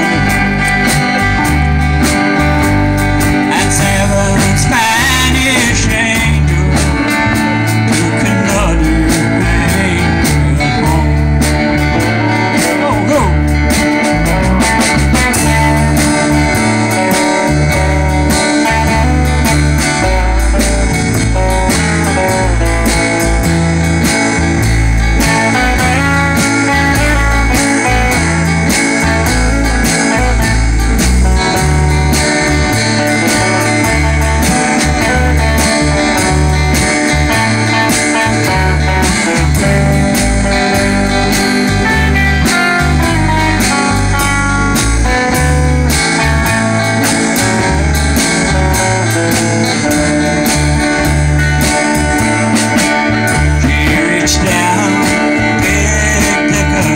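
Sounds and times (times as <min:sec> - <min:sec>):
bass: 0:00.0 - 0:56.9
drums: 0:00.0 - 0:56.9
electric lead guitar melody: 0:00.0 - 0:56.9
strummed acoustic guitar: 0:00.0 - 0:56.9.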